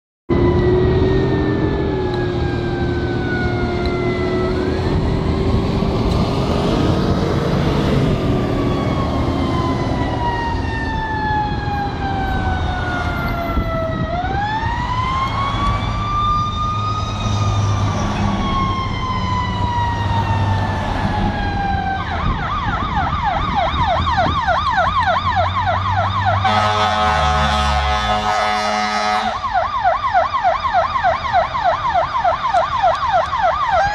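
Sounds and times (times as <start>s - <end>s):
ambulance siren: 0.3s - 33.9s
traffic rumble: 0.3s - 33.9s
multi-tone horn blast: 26.4s - 29.5s.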